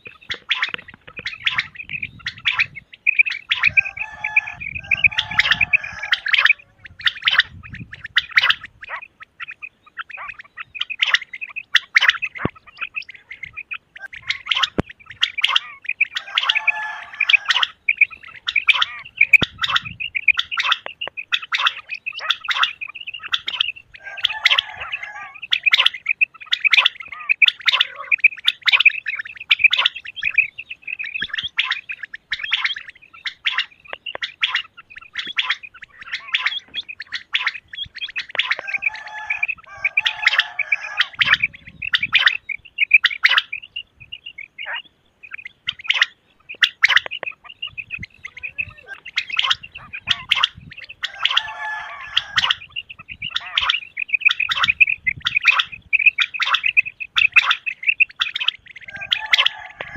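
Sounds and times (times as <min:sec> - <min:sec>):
quail high chirping calls: 0:00.0 - 0:59.9.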